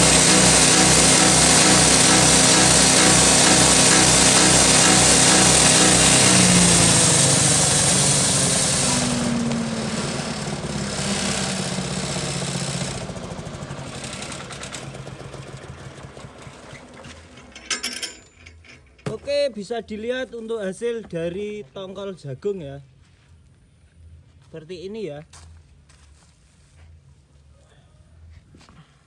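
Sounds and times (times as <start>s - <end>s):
forage chopper grinding corn: 0.0s - 17.9s.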